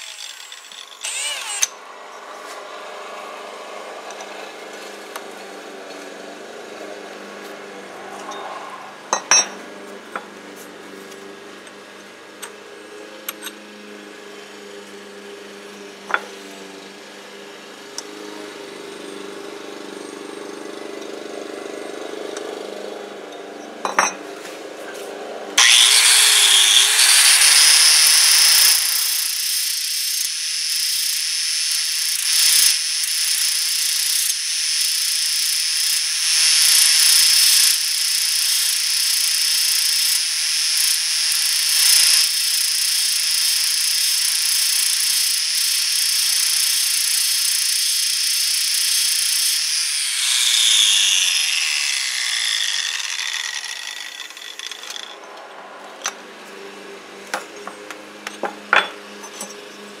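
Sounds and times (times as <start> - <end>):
rotary power tool grinding: 0.0 - 11.3, 25.0 - 55.4.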